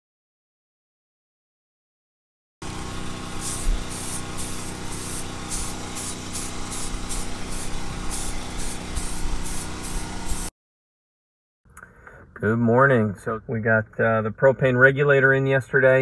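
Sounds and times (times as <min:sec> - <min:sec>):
aerosol spray can bursts: 0:02.6 - 0:10.5.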